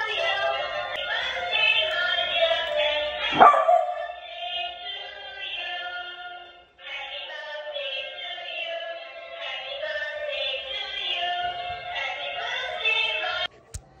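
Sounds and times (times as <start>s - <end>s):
dog barking: 3.3s - 4.2s.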